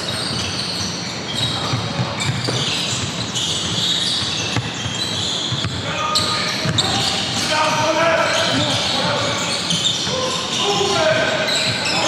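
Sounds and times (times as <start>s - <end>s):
shoe squeaks: 0.0s - 12.0s
basketball bouncing: 1.4s - 7.1s.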